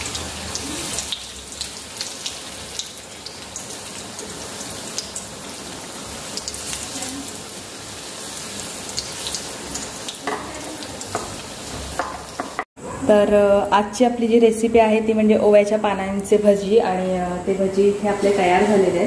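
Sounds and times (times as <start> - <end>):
fritters deep-frying in oil: 0.0 - 12.5
oil crackles and pops: 0.1 - 5.4.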